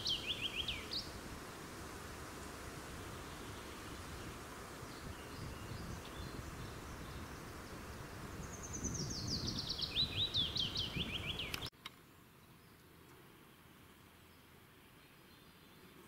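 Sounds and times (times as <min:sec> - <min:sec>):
songbird singing: 0:00.0 - 0:01.4, 0:02.8 - 0:16.0.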